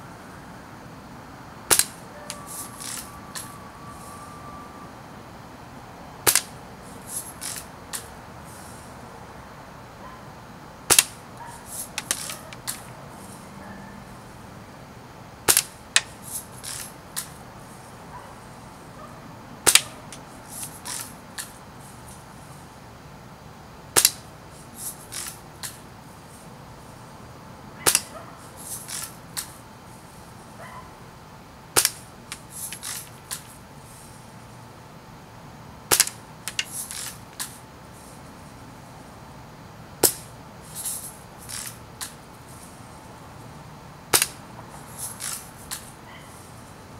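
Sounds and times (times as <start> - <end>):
bb gun shot snap: 1.7 - 2.0, 6.3 - 6.6, 10.9 - 11.2, 15.5 - 15.8, 19.7 - 20.0, 27.9 - 28.1, 35.9 - 36.2, 44.1 - 44.4.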